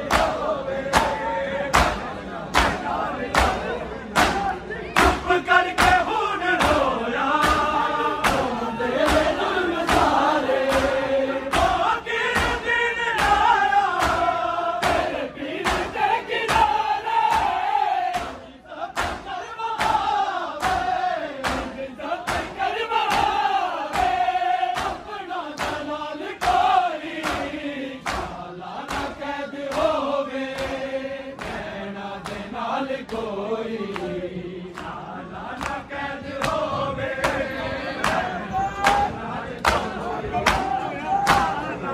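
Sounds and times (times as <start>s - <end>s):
hands beating chests: 0.0s - 18.4s, 19.0s - 30.8s
men chanting a lament: 0.0s - 41.9s.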